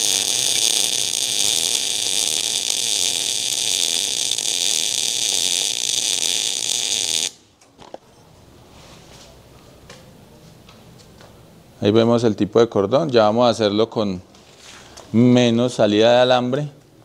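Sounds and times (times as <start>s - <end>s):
welding arc sizzling: 0.0s - 7.5s.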